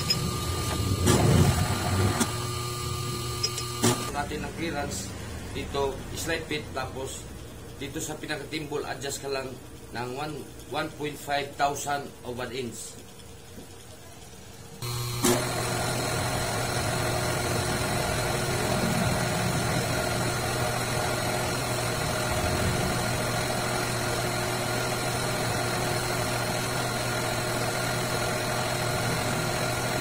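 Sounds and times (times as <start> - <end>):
metal lathe motor humming: 0.0 - 4.2, 14.8 - 30.0.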